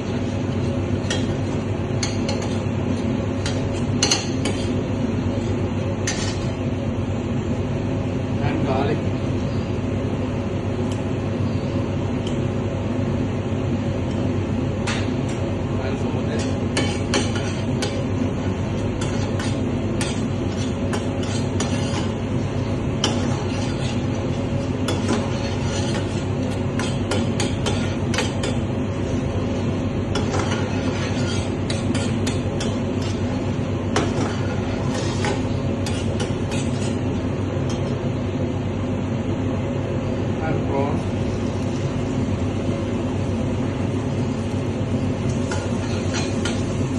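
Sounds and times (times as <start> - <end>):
metal spoon stirring in pan: 0.0 - 4.8, 16.4 - 29.2, 30.1 - 38.0, 45.2 - 46.9
kitchen hum: 0.0 - 46.9.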